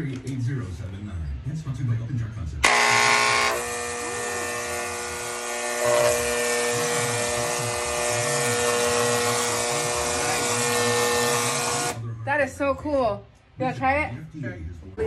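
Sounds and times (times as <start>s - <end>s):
paint sprayer motor hum: 2.6s - 12.0s.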